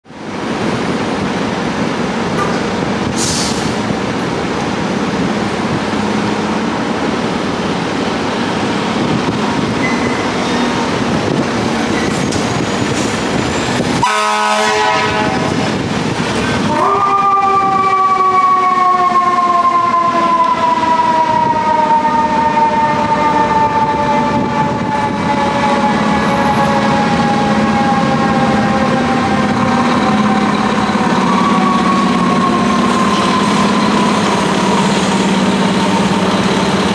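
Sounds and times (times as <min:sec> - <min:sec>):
air horn blast: 0:14.0 - 0:15.7, 0:16.7 - 0:18.6
mechanical siren wailing: 0:16.7 - 0:36.2
diesel engines running: 0:24.1 - 0:36.9.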